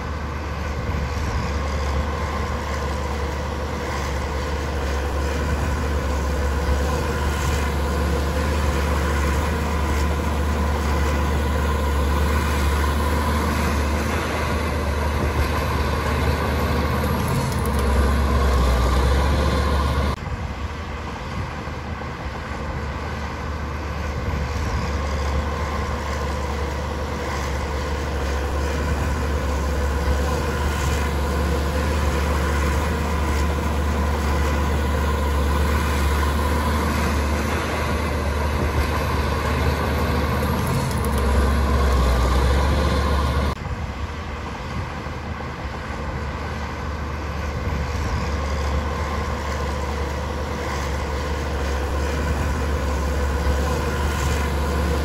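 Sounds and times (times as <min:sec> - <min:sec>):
clatter of work: 0:00.0 - 0:20.4, 0:23.8 - 0:43.9
diesel machinery engine drone: 0:00.0 - 0:55.0.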